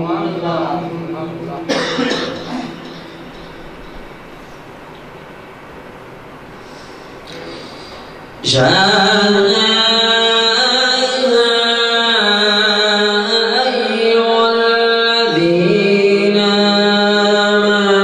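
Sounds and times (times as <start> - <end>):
man chanting into a microphone: 0.0 - 1.8, 8.4 - 18.0.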